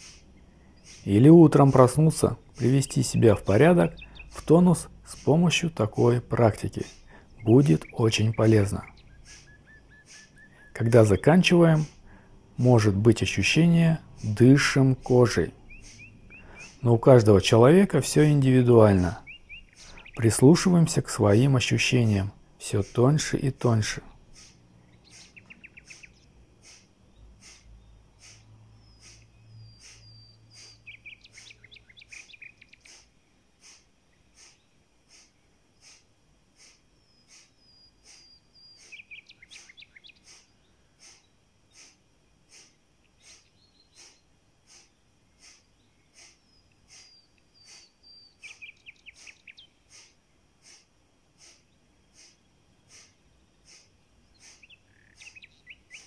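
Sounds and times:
sharp nasal exhalations: 0.0 - 1.8, 6.8 - 7.4, 8.9 - 10.7, 11.8 - 12.4, 15.6 - 16.8, 19.7 - 20.2, 24.0 - 56.0
bird chirping: 0.0 - 56.0.

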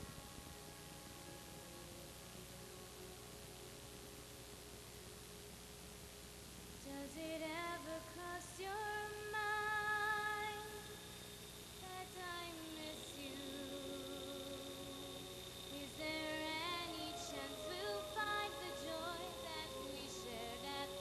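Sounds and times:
woman singing into microphone: 6.8 - 10.9, 11.8 - 21.0
thin high tone: 11.8 - 21.0.

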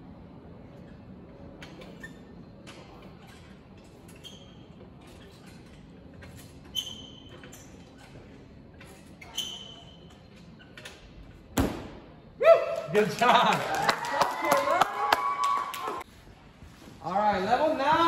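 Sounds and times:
gymnastics bar creaking: 0.7 - 11.6.

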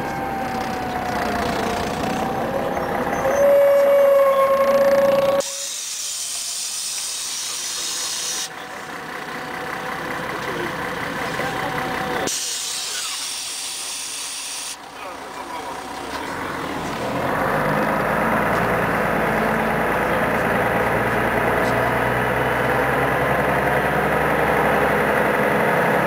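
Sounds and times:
bus brakes squealing: 1.6 - 8.6, 12.1 - 14.8
compressed air hiss: 5.4 - 8.5, 12.3 - 14.8.

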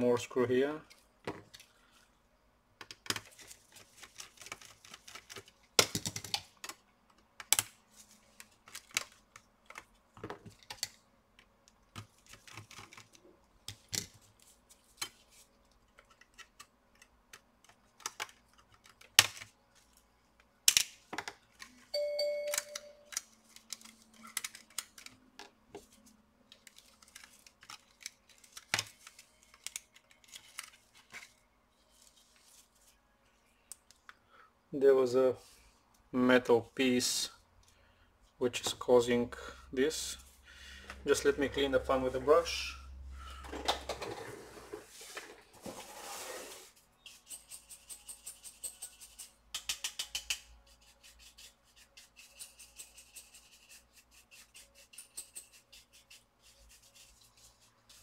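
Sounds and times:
tools clicking and scraping: 47.0 - 56.2.

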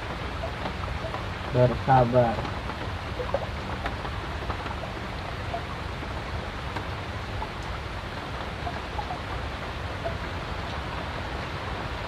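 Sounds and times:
steady rain on water: 0.0 - 12.0.

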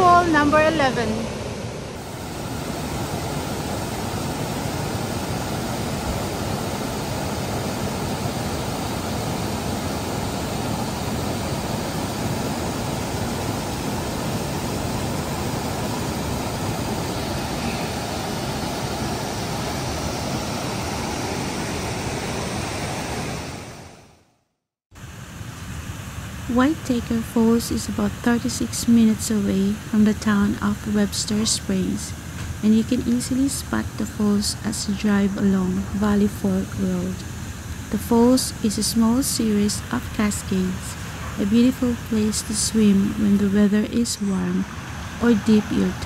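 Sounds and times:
water rushing over cascades: 0.0 - 23.8.

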